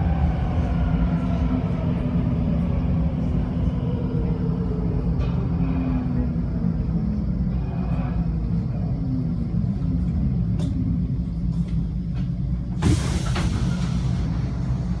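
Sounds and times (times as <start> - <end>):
train wheels rumbling: 0.0 - 15.0
air brakes hissing: 12.8 - 15.0.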